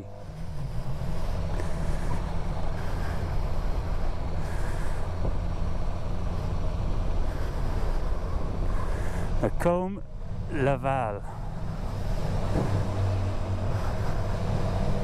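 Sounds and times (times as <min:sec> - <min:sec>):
wind and road noise: 0:00.0 - 0:15.0.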